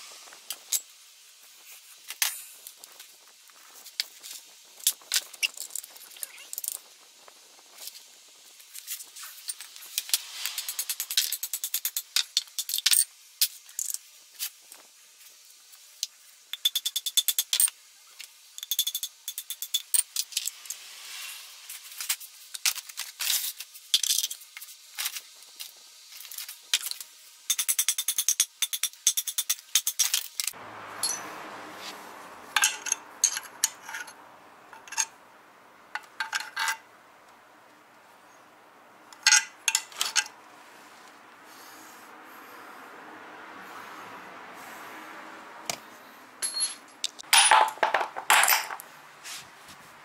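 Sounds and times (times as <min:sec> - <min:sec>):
hammer striking metal: 0:31.0 - 0:31.4
metal tool scraping metal: 0:32.6 - 0:35.2.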